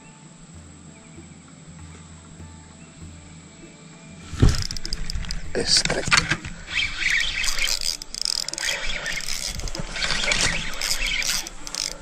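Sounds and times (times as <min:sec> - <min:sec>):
fishing reel clicking whir: 0:04.3 - 0:12.0.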